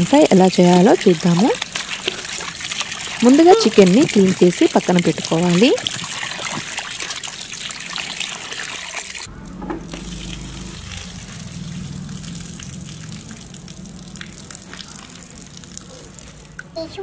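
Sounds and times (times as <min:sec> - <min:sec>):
tap water gushing into metal bowl: 0:00.0 - 0:16.8
running water: 0:00.0 - 0:17.0
water splashing: 0:00.0 - 0:17.0
low hum: 0:09.3 - 0:16.7.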